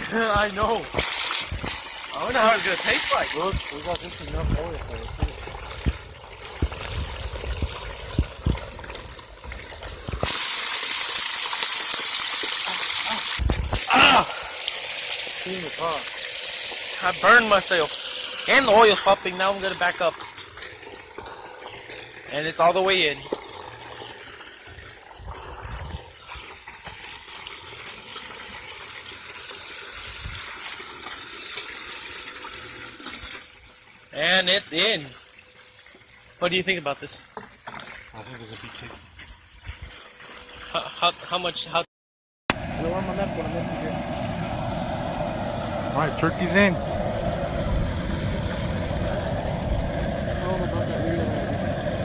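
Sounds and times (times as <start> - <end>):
hot oil bubbling and sizzling: 0.0 - 41.2, 42.5 - 52.0
low rumbles: 42.5 - 52.0.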